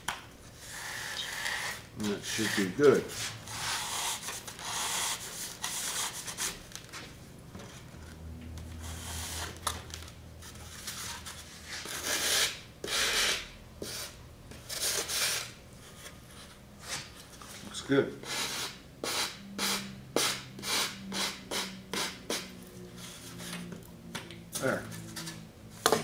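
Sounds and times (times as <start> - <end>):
sandpaper scraping wood: 0.6 - 6.6.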